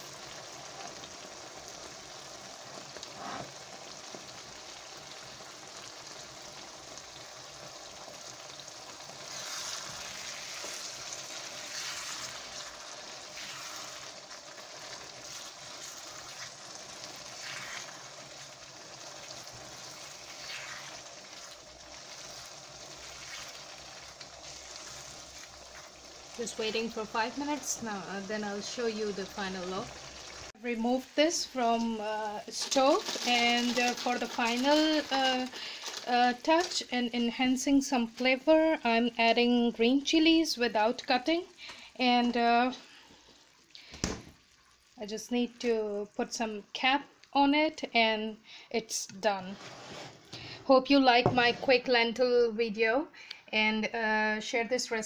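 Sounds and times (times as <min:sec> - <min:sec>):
curry sizzling and bubbling: 0:00.0 - 0:52.9
spatula stirring: 0:09.1 - 0:27.9, 0:31.7 - 0:36.9, 0:49.3 - 0:50.6.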